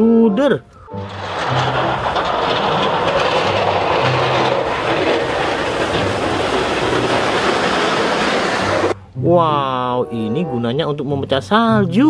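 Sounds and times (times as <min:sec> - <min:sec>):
loader diesel engine drone: 0:00.8 - 0:09.0
plow blade scraping snow: 0:00.9 - 0:09.0.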